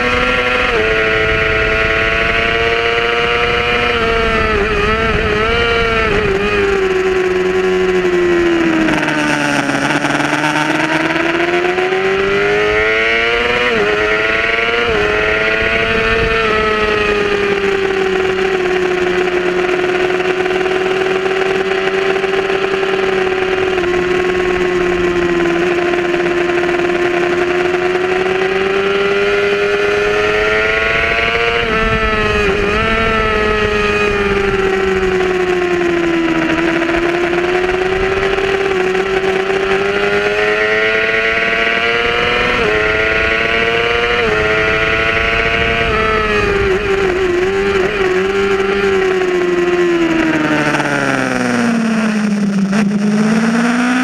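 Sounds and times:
wind rush: 0:00.0 - 0:18.4, 0:30.3 - 0:35.5, 0:41.2 - 0:49.4
motorcycle engine revving: 0:00.0 - 0:54.0.

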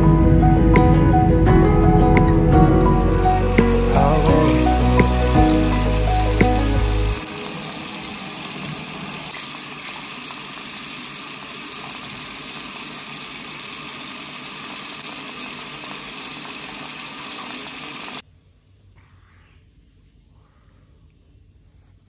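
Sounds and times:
sink tap running: 0:02.6 - 0:18.2.

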